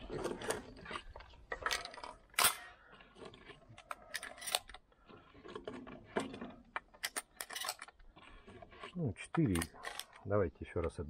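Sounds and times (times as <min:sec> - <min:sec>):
shotgun reloading clicks: 0:01.7 - 0:02.7.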